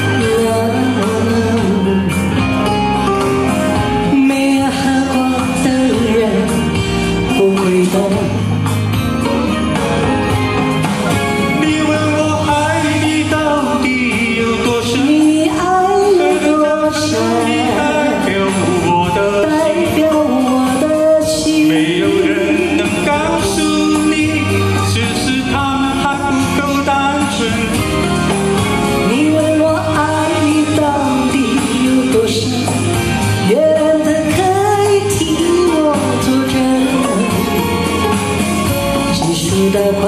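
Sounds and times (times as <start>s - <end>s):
woman singing into microphone: 0.0s - 2.7s, 3.8s - 8.6s, 11.6s - 25.6s, 29.0s - 38.4s, 39.0s - 40.0s
man singing: 0.0s - 9.5s, 10.4s - 40.0s
pop backing track: 0.0s - 40.0s.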